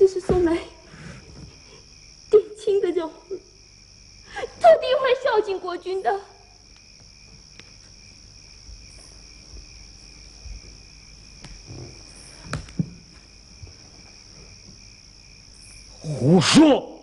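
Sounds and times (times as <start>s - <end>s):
crickets chirping: 0.0s - 17.0s
soft knocks: 11.4s - 14.8s.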